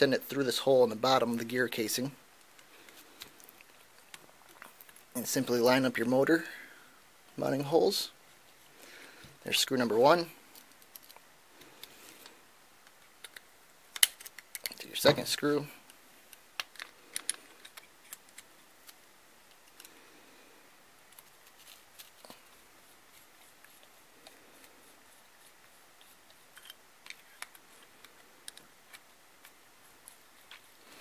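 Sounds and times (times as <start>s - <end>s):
small clicks and taps of parts: 10.5s - 14.8s, 15.8s - 19.9s, 26.0s - 30.7s.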